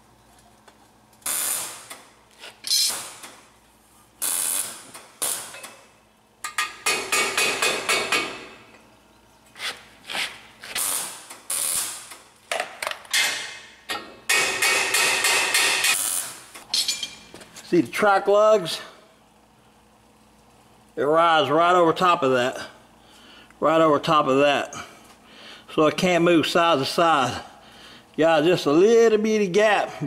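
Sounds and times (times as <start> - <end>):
weld tack crackling: 10.6 - 13.5.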